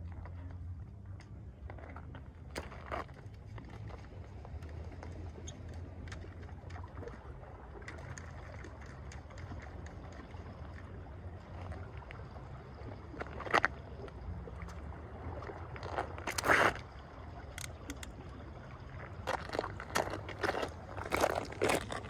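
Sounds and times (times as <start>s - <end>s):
fishing rods knocking and scraping: 17.5s - 18.2s
footsteps on rock: 19.3s - 22.0s.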